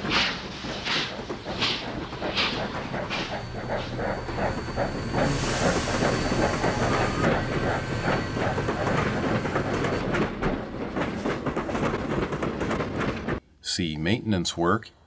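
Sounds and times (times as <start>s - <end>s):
steam hissing: 0.0s - 10.2s
steam locomotive chuffing: 0.0s - 13.4s.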